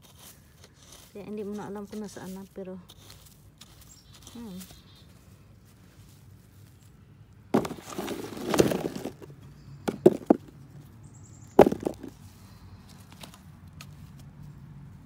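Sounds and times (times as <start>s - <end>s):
soil scraping and digging: 0.0s - 10.9s, 11.6s - 15.0s
potatoes knocking into plastic basin: 7.6s - 10.6s, 11.6s - 12.2s.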